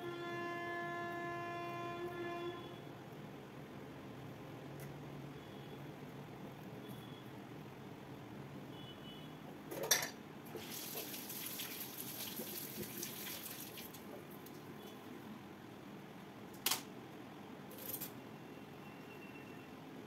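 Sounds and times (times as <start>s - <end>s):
water running from a tap: 10.5s - 14.2s.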